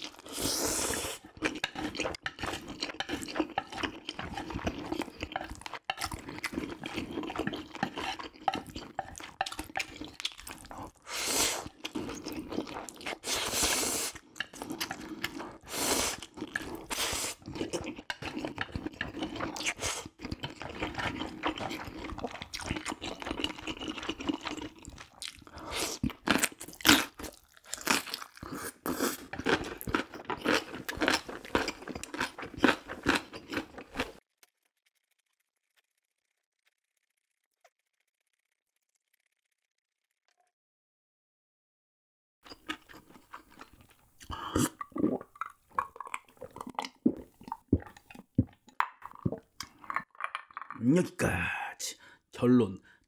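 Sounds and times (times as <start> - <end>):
chewing noodles with wet smacks: 0.0 - 34.2, 42.5 - 50.2.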